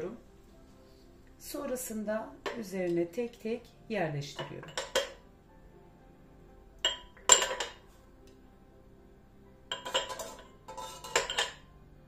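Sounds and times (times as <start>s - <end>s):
ceramic cups clinking: 4.4s - 5.2s, 6.8s - 7.9s, 9.7s - 11.7s.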